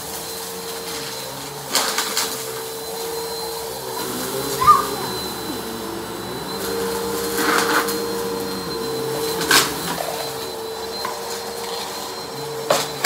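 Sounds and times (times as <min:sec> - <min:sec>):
upright vacuum running: 0:00.0 - 0:13.0
grit crackling in vacuum: 0:03.4 - 0:10.7.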